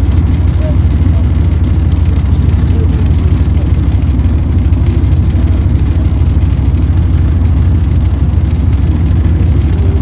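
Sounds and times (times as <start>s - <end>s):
bus diesel engine rumbling: 0.0s - 10.0s.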